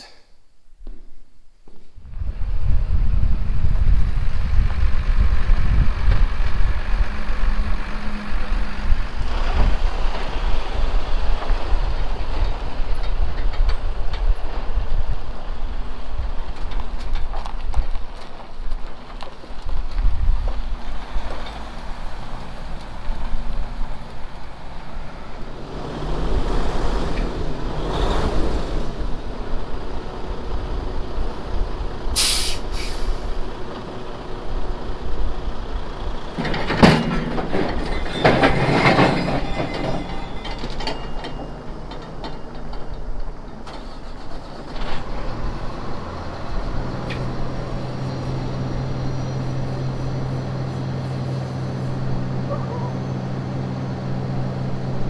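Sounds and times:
diesel truck engine running: 18.2 - 55.0
air hissing: 32.1 - 33.4.

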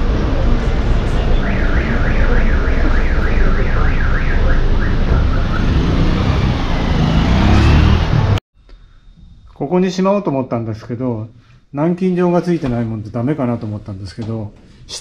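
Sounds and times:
street traffic rumble: 0.0 - 8.4
warbling electronic alarm: 0.8 - 7.3
motorcycles passing: 4.3 - 8.4.

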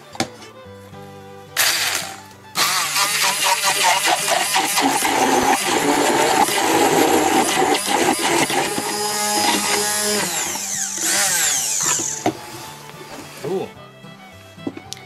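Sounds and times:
immersion blender running: 1.6 - 12.6.

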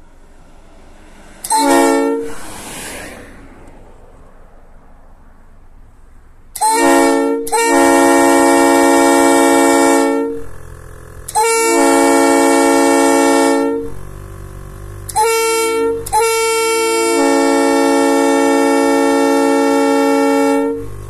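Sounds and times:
train air horn blasts: 0.0 - 2.8, 6.6 - 14.0, 15.1 - 21.0.

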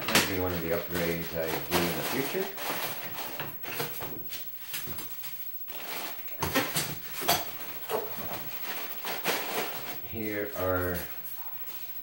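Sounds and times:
plastic bags crinkling: 0.0 - 3.8.

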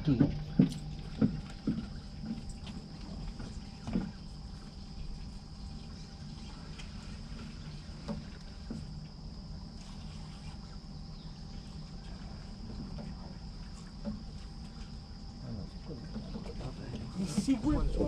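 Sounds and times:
outboard motor idling: 0.0 - 8.9, 11.5 - 18.0
high-pitched whine: 17.5 - 18.0.

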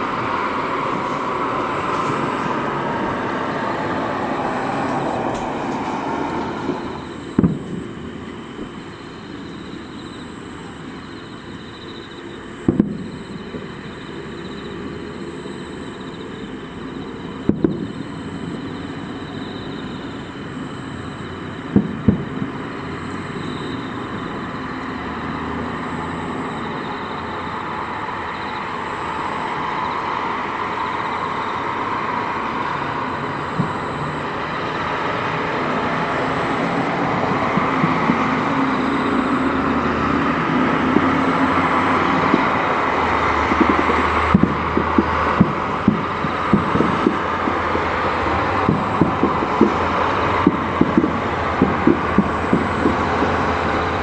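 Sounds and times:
steady background noise: 0.0 - 54.0
distant firework booms: 6.6 - 8.8, 12.6 - 13.7, 17.4 - 18.6, 21.7 - 22.7, 43.5 - 47.8, 48.6 - 54.0.

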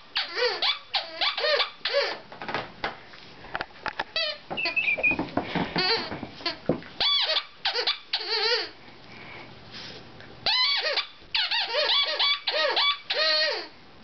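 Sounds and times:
squeaky dog toy squealing: 0.0 - 2.2, 4.2 - 5.1, 5.8 - 8.8, 10.4 - 13.8.

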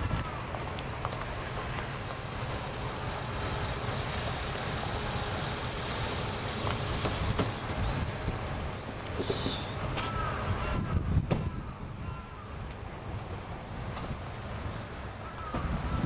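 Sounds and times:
car engine and road noise: 0.0 - 16.0.

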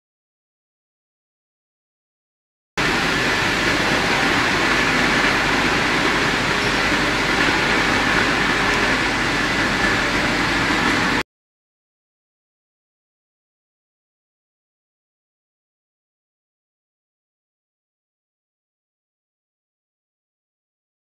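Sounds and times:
fan-like hiss with whine: 2.8 - 11.2.

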